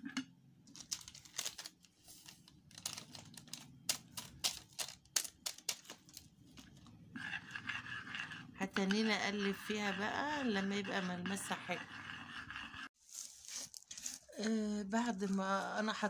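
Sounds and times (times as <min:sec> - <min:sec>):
metal spoon scraping a bowl: 0:07.2 - 0:12.9.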